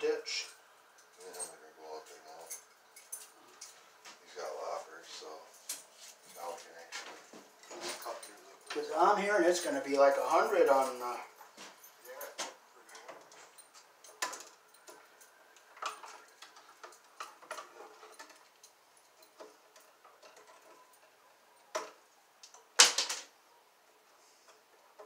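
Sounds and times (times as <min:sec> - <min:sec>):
wire strippers clicking and snipping: 0:12.3 - 0:23.3.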